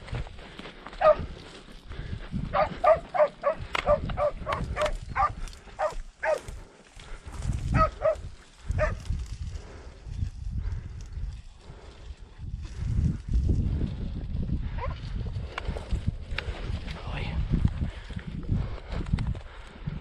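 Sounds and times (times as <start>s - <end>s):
hound yelping: 1.0s - 1.2s, 2.6s - 6.5s, 7.7s - 8.2s.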